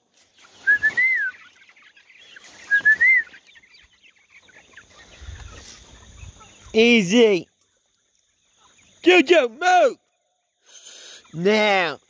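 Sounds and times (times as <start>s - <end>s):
chickens clucking: 0.0s - 12.0s
whistled call: 0.6s - 1.5s, 2.6s - 3.5s.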